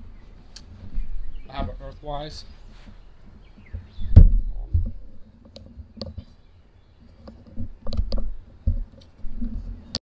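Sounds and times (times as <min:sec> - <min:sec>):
irregular clicks and light knocks: 0:00.4 - 0:06.4, 0:07.0 - 0:10.0
soft low thump: 0:03.6 - 0:05.0.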